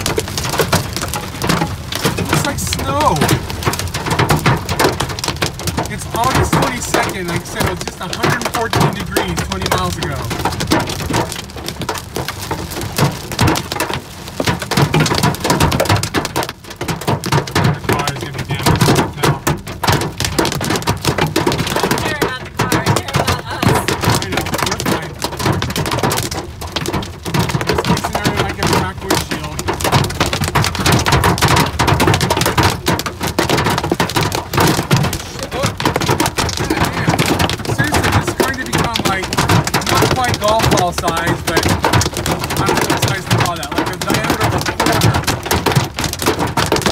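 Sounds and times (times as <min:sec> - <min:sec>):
rain and hail on car roof: 0:00.0 - 0:46.9.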